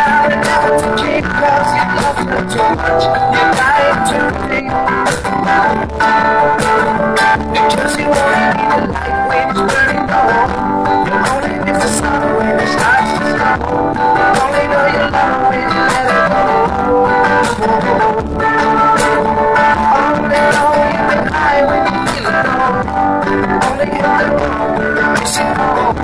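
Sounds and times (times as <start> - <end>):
person singing: 0.0 - 26.0
rock guitar: 0.0 - 26.0.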